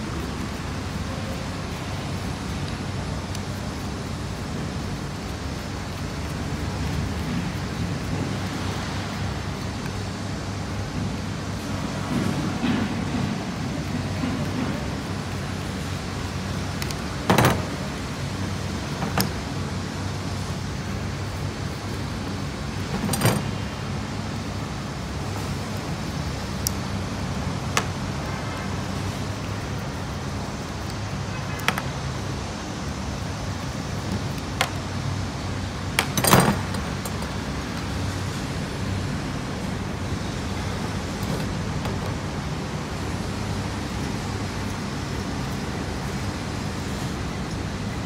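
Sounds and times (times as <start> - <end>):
metal-on-metal clicks: 16.7 - 17.9, 35.9 - 37.9
screwdriver metal clicks: 16.8 - 17.6.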